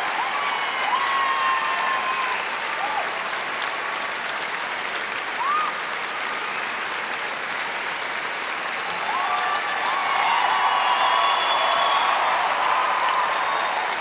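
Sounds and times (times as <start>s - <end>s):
pitched calls from audience: 0.0s - 4.0s, 8.7s - 14.0s
audience applauding: 0.0s - 14.0s.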